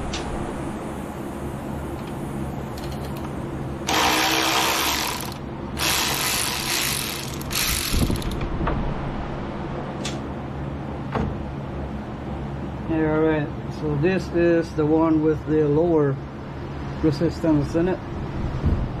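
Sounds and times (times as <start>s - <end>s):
power ratchet running: 2.7s - 3.2s, 3.8s - 8.4s.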